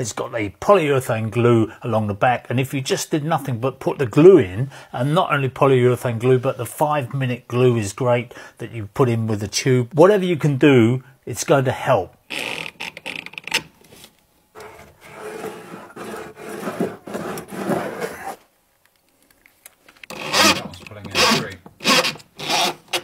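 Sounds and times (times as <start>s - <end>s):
screw grinding into wood: 14.6s - 18.4s, 20.1s - 23.0s.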